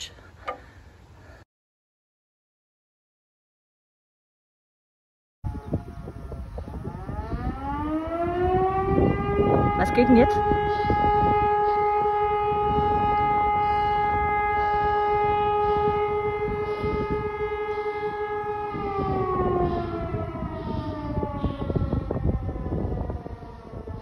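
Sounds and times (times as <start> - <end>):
siren winding down: 5.5 - 24.0.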